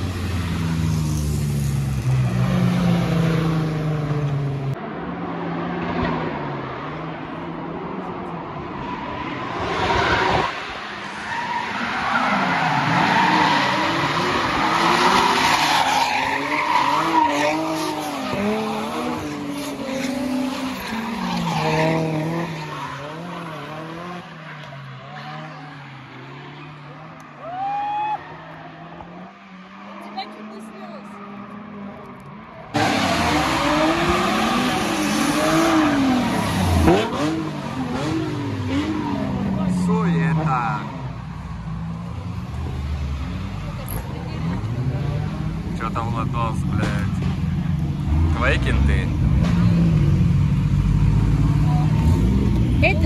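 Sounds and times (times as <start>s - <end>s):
car engines revving: 0.0s - 53.0s.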